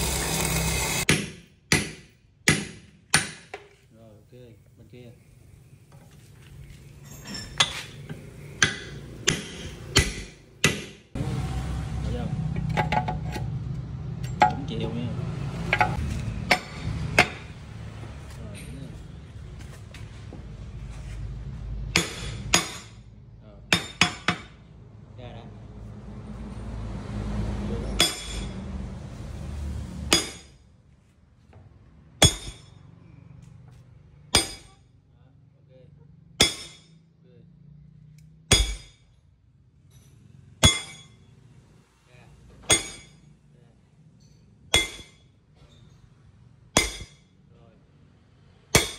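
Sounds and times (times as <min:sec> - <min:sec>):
hammer striking metal: 0:01.0 - 0:03.7, 0:07.2 - 0:11.1, 0:15.7 - 0:17.5, 0:21.9 - 0:23.0, 0:23.7 - 0:24.6, 0:27.9 - 0:28.6, 0:30.1 - 0:30.6, 0:32.2 - 0:32.8, 0:34.3 - 0:34.8, 0:36.4 - 0:37.0, 0:38.5 - 0:39.1, 0:39.9 - 0:41.3, 0:42.6 - 0:43.3, 0:44.2 - 0:45.3, 0:46.7 - 0:47.3, 0:48.6 - 0:48.9.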